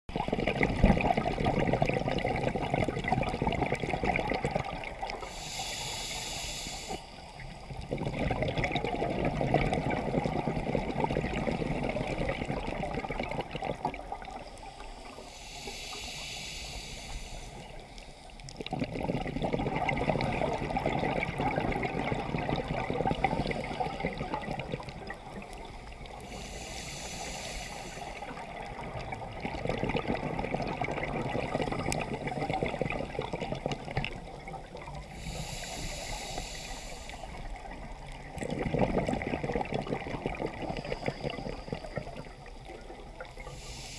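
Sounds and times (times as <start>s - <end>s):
exhaled bubbles gurgling: 0.1s - 6.2s, 7.1s - 16.1s, 17.0s - 43.9s
diver inhaling through regulator: 5.1s - 8.6s, 14.6s - 43.9s.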